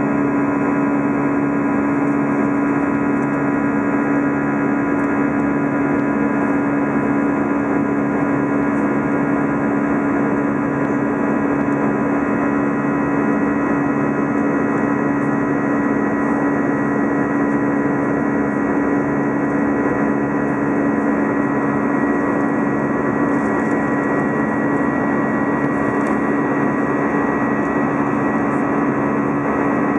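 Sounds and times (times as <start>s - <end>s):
airplane cabin engine drone: 0.0s - 29.9s.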